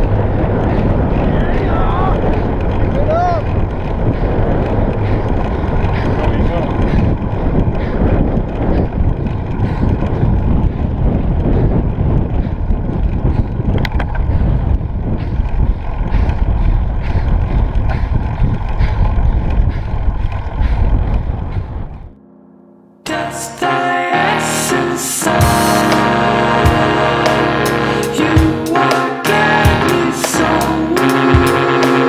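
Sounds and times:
wind buffeting microphone: 0.0 - 22.2.

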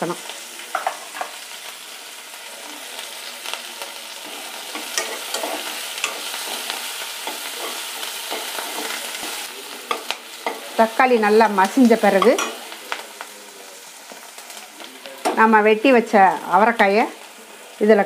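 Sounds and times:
food sizzling in hot oil: 0.0 - 18.0
metal spatula scraping pan: 4.2 - 10.7.

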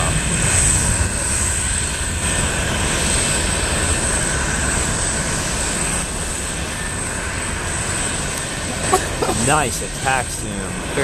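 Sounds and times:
distant jet engines running: 0.0 - 11.0.

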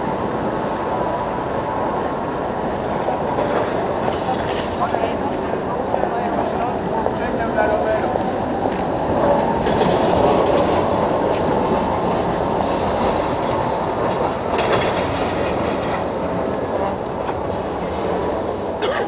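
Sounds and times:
tram wheels rumbling on rails: 0.0 - 19.0
wheels clattering over track: 13.0 - 18.0.

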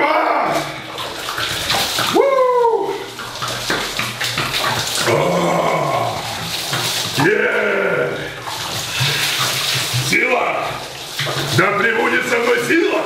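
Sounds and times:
water pouring and splashing: 0.0 - 13.0
man yelling: 2.1 - 3.0.

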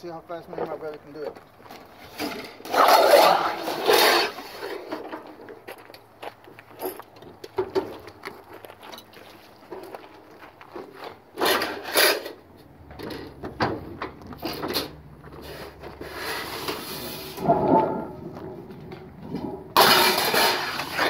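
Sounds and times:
sheet metal clanking and scraping: 16.2 - 21.0.

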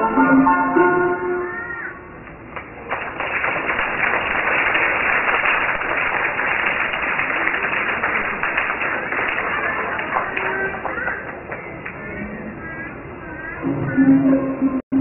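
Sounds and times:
audience applauding: 2.3 - 12.2.

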